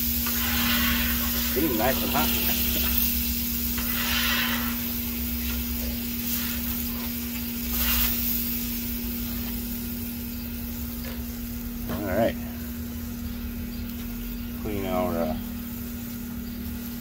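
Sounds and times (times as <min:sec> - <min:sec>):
metal scraper on hot griddle: 0:00.0 - 0:08.7
steady low hum: 0:00.0 - 0:17.0.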